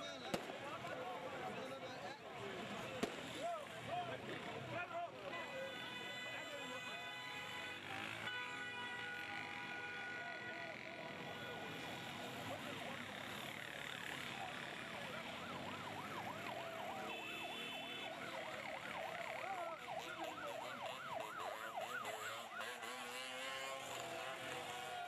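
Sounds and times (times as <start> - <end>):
crowd noise: 0.0 - 8.3, 9.2 - 25.0
electronic siren yelping: 14.3 - 23.7.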